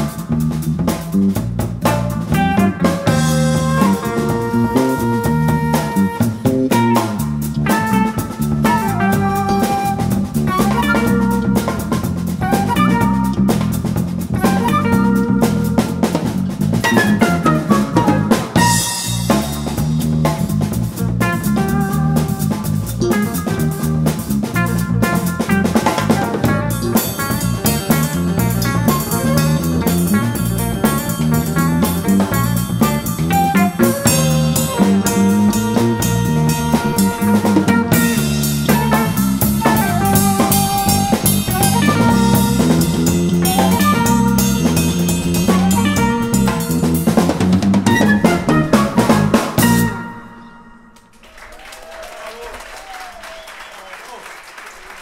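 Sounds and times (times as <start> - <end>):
electric bass line: 0.0 - 50.8
drum kit: 0.0 - 51.1
guitar: 0.0 - 51.1
jazz-funk band playing: 0.0 - 51.2.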